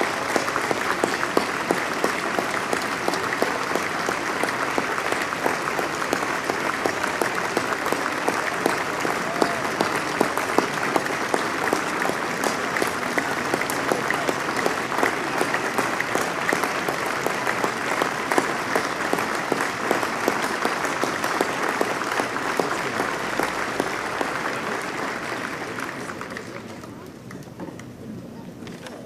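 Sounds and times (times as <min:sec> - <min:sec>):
crowd applause: 0:00.0 - 0:27.4.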